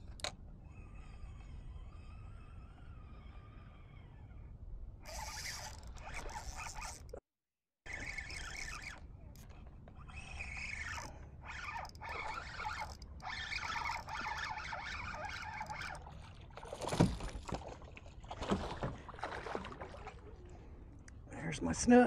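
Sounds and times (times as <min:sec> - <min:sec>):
fishing reel whirring: 0:00.1 - 0:07.2, 0:07.8 - 0:16.2
fish splashing: 0:10.0 - 0:20.5.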